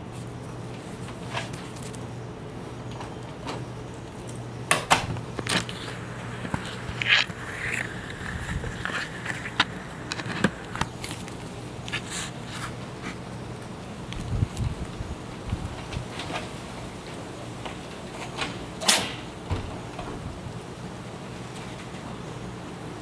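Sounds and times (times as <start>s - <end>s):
low hum: 2.2s - 15.8s.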